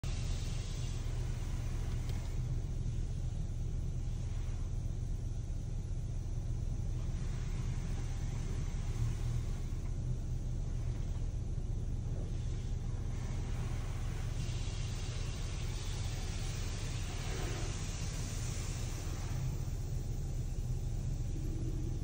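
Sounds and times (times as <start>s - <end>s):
car wash low rumble: 0.0s - 22.0s.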